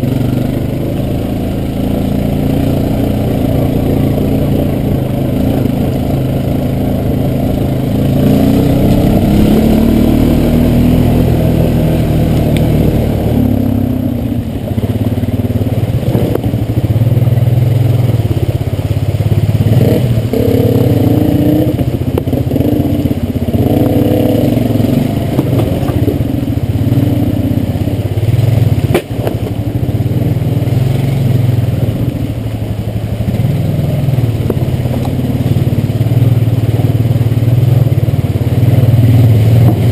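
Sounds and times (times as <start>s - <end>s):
quad bike engine revving: 0.0s - 39.9s
clatter over rocks: 25.2s - 26.2s.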